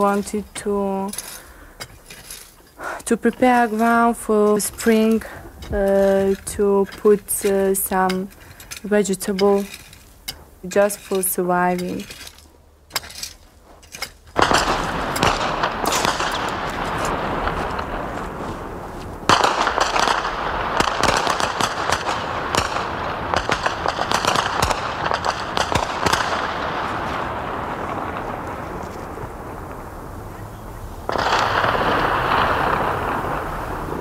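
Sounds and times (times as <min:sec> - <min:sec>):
rapid gunfire echoing: 0:14.4 - 0:17.6, 0:19.3 - 0:26.8.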